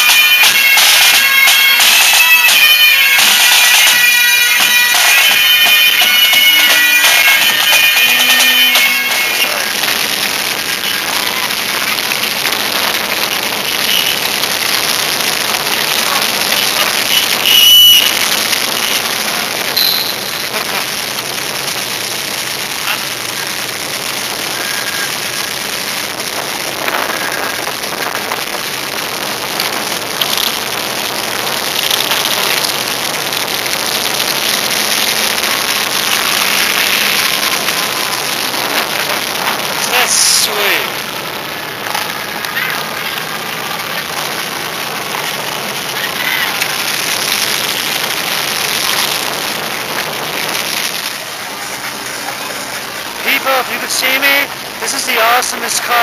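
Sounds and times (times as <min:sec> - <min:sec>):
steady hiss: 0:18.0 - 0:56.0
high-pitched blip: 0:19.8 - 0:20.4.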